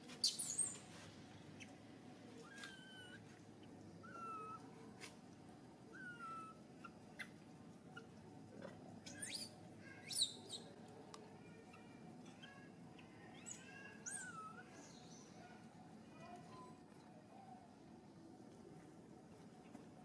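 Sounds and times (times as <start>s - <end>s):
baby monkey squeaky coos: 0.2s - 0.8s, 2.4s - 3.2s, 4.0s - 4.7s, 5.9s - 8.1s, 9.0s - 10.7s, 11.7s - 14.8s
baby monkey shrieks: 2.4s - 3.2s, 4.0s - 4.6s, 5.9s - 6.6s, 9.0s - 10.7s, 13.3s - 14.7s.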